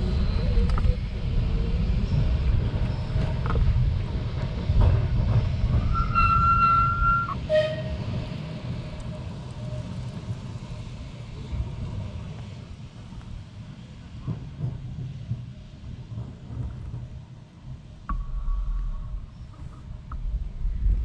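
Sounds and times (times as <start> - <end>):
tram rumbling on rails: 0.0 - 21.0
high steady squeal: 5.7 - 10.0.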